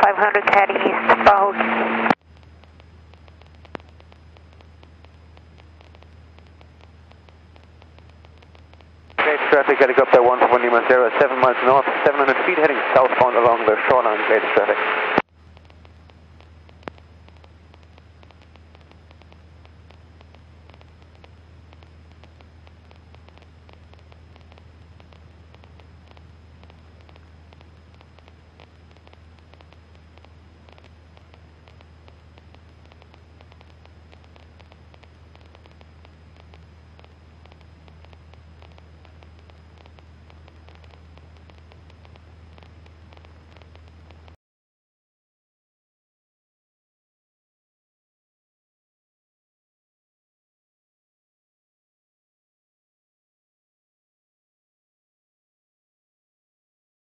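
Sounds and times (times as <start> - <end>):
faint airplane engine drone: 0.0 - 44.4
intercom hiss and hum: 0.0 - 44.4.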